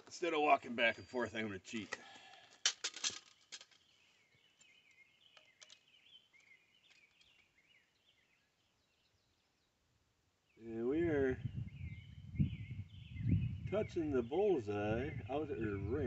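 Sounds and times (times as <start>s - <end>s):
faint bird chirps: 3.3s - 16.0s.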